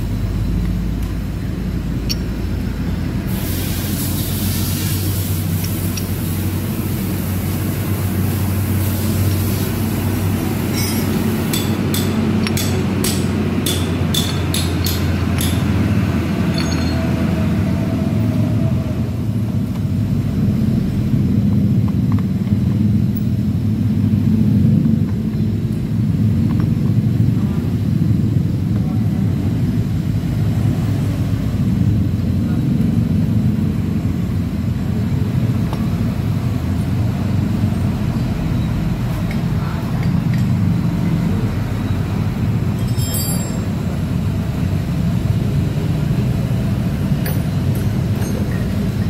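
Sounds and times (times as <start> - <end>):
low mechanical rumble: 0.0 - 49.0
metal gear clinking against shaft: 10.7 - 15.8, 16.4 - 17.3, 42.8 - 43.8.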